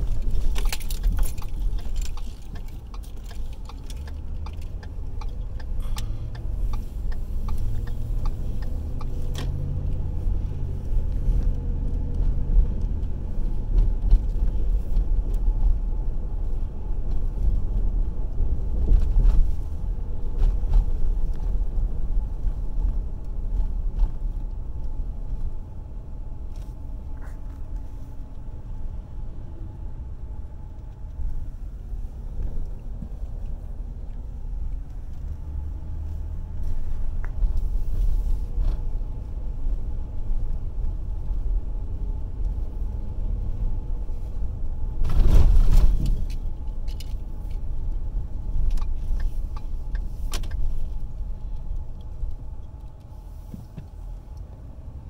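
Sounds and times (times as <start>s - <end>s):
small rattles and clicks: 0.0s - 9.1s
car cabin road and engine rumble: 0.0s - 55.0s.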